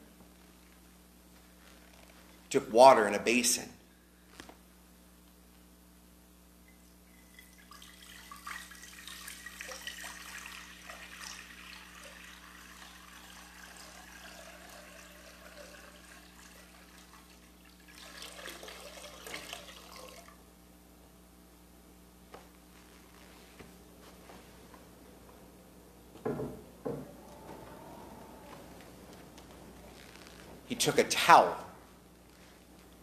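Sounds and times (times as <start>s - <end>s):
water pouring into a basin: 7.0s - 20.4s.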